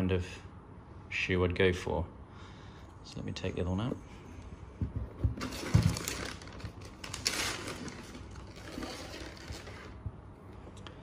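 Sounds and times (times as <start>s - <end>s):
rustling and handling noise: 4.1s - 10.9s
boot thumping on a table: 4.8s - 5.8s.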